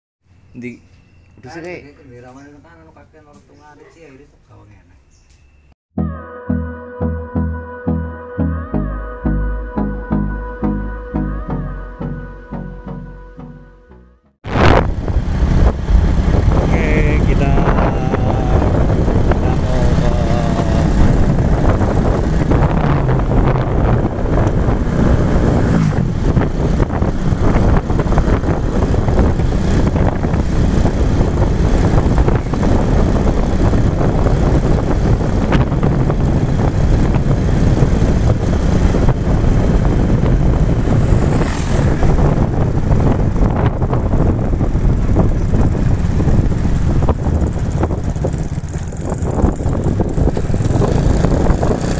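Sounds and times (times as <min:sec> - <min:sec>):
wind buffeting microphone: 0:14.4 - 0:51.9
motorbike engine rumble: 0:14.5 - 0:51.9.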